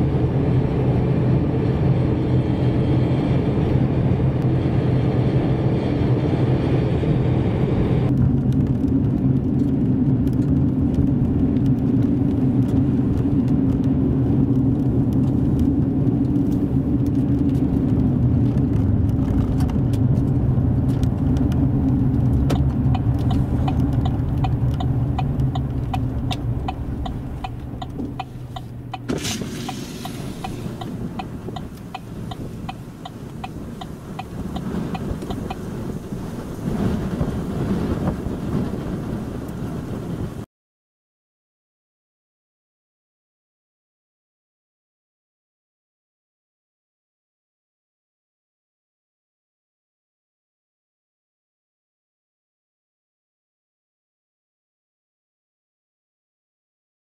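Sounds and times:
car road and engine rumble: 0:00.0 - 0:40.5
turn signal ticking: 0:21.0 - 0:37.4
hiss: 0:29.2 - 0:30.8.

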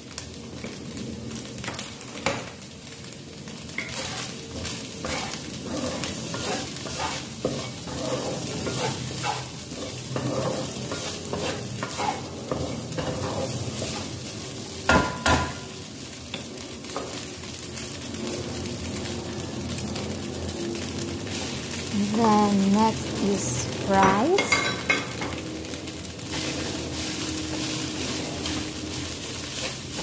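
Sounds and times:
food sizzling in oil: 0:00.0 - 0:30.0
wooden spatula scraping pan: 0:03.8 - 0:14.1.

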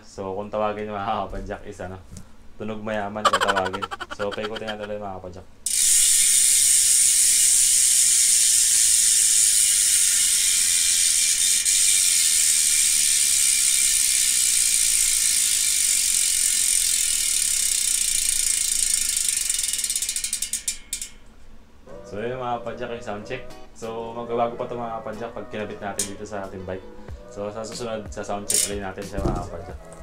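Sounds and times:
bicycle freehub ratcheting buzz: 0:03.3 - 0:04.9, 0:05.6 - 0:21.3, 0:28.5 - 0:28.9.

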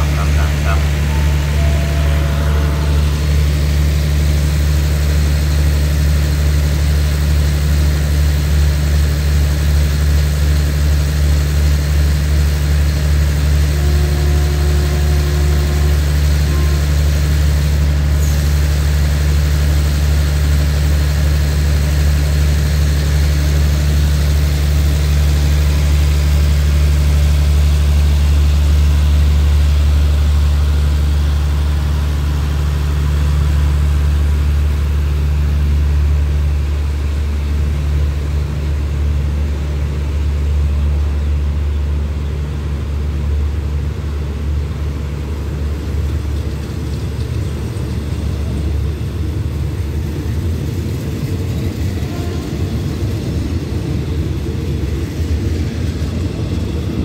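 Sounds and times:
train diesel engine idling: 0:00.0 - 0:57.0.

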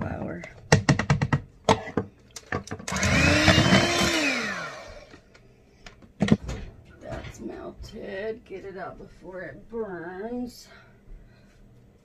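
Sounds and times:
electric hand mixer whining: 0:02.8 - 0:05.2.

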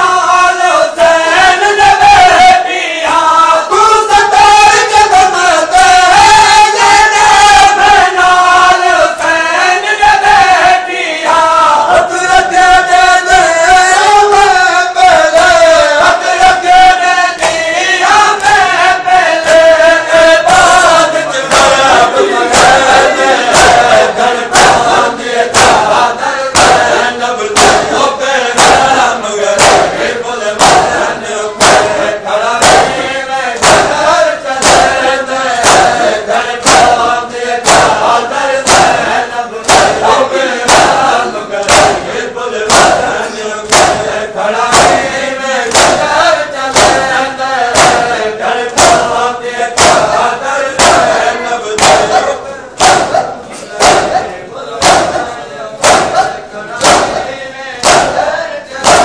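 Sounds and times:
men chanting: 0:00.0 - 0:59.0
hands slapping chests: 0:17.4 - 0:17.7, 0:21.4 - 0:28.0, 0:28.6 - 0:29.0, 0:29.6 - 0:49.2, 0:49.8 - 0:50.2, 0:50.8 - 0:59.0.

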